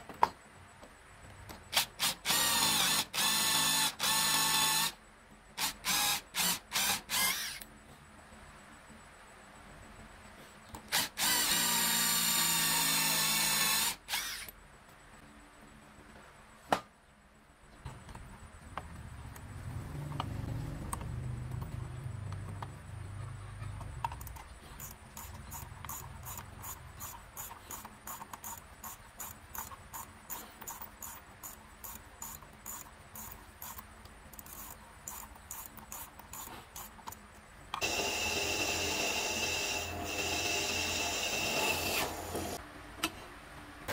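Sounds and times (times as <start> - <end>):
electric drill boring into wood: 1.8 - 5.0, 5.6 - 7.6, 10.9 - 14.5, 37.8 - 42.6
drill press whining: 37.8 - 42.6.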